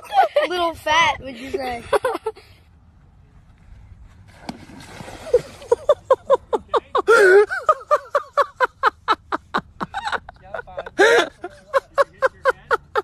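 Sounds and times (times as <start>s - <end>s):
people laughing: 5.2s - 13.0s.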